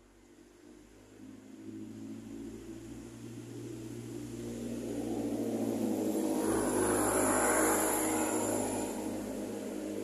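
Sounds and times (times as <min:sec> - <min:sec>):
vehicle passing: 0:02.0 - 0:10.0.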